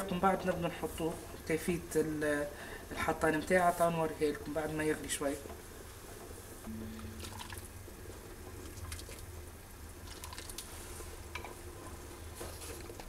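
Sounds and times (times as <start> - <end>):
liquid splashing and dripping: 7.0 - 7.7.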